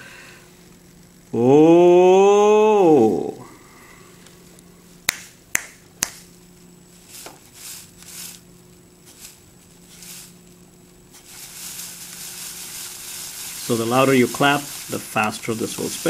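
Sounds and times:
hand claps: 0:05.1 - 0:06.3.

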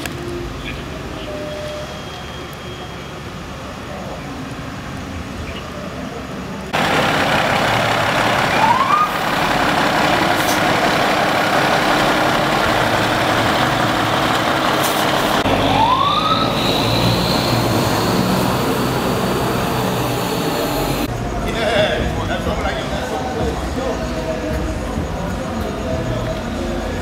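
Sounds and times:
fire engine noise: 0:00.0 - 0:27.0
rising siren whoops: 0:08.4 - 0:09.3, 0:15.4 - 0:21.1.

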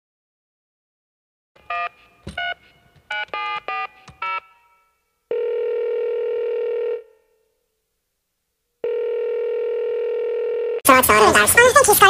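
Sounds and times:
continuous phone tone: 0:01.6 - 0:04.5, 0:05.3 - 0:07.3, 0:08.8 - 0:10.9
telephone keypad beeps: 0:01.7 - 0:04.4.

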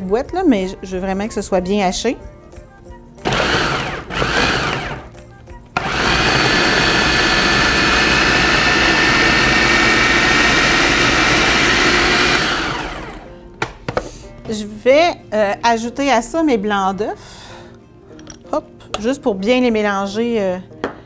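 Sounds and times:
food processor chopping vegetables: 0:03.2 - 0:05.1, 0:05.8 - 0:13.3.

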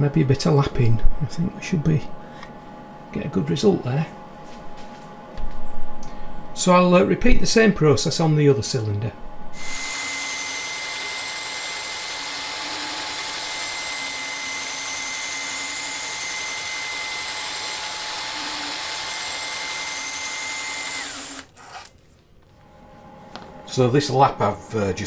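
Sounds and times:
rotary tool high whine: 0:09.5 - 0:22.0.

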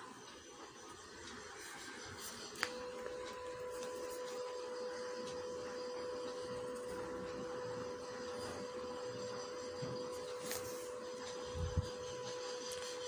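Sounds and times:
mid-pitched hum: 0:00.0 - 0:13.0
pencil scratching on paper: 0:06.8 - 0:13.0.

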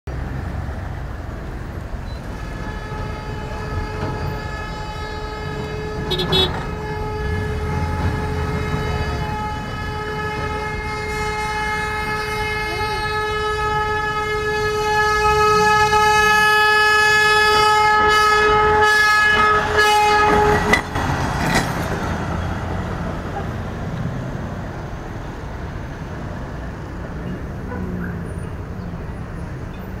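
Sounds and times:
truck engine and rolling noise: 0:00.1 - 0:30.0
truck horn long blast: 0:02.1 - 0:20.8.

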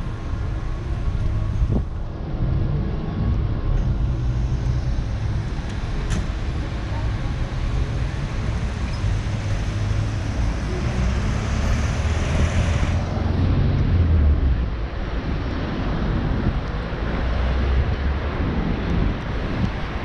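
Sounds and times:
wind buffeting microphone: 0:00.0 - 0:11.5, 0:12.6 - 0:20.0
city street traffic rumble: 0:00.0 - 0:20.0.

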